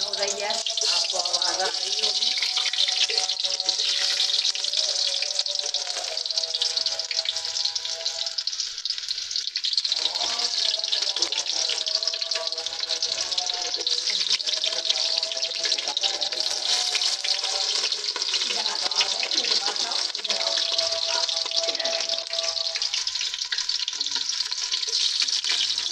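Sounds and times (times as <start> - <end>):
call to prayer sung: 0.0 - 2.5, 10.0 - 23.0
onions sizzling in oil: 0.0 - 25.9.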